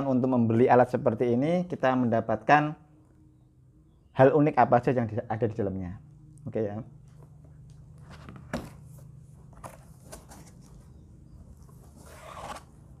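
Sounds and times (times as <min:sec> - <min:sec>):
faint low hum: 0:00.0 - 0:13.0
cardboard rustle: 0:08.0 - 0:12.8.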